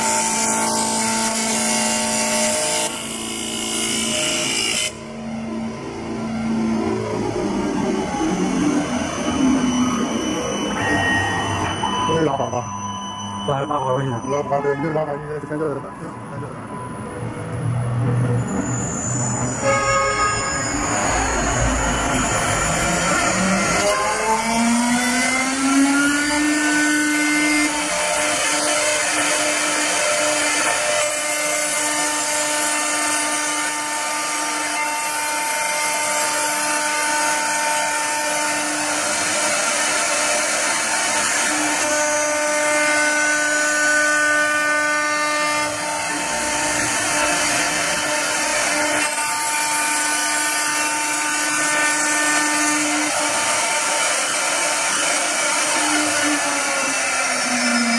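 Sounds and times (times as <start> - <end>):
router spindle whining: 0.0 - 57.9
hissing wood cutting noise: 20.4 - 57.9.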